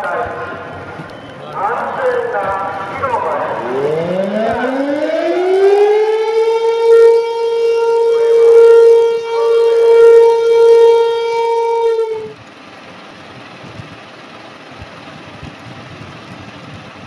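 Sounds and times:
warning siren wailing: 0.0 - 12.4.

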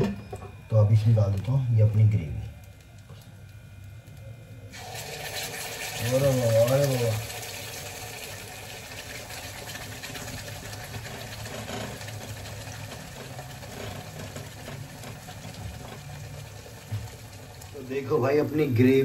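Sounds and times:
gravy sizzling in hot fat: 4.7 - 19.0.

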